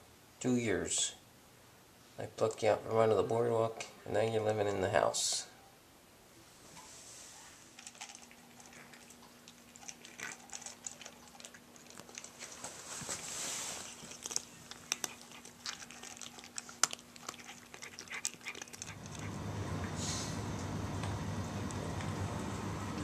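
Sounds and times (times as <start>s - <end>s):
faint steady hum: 0.0s - 23.0s
cats crunching dry food: 7.6s - 19.6s.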